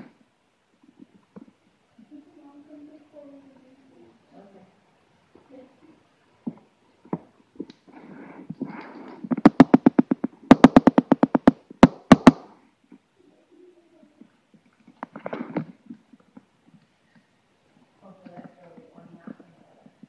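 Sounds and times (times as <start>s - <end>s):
rapid sharp taps: 9.2s - 12.5s
rustling: 14.0s - 20.0s.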